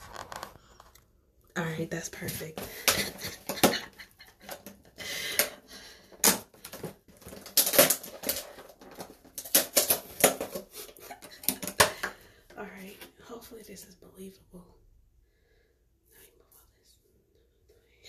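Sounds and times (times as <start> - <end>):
plastic container crackling: 0.0 - 1.0, 6.2 - 12.1.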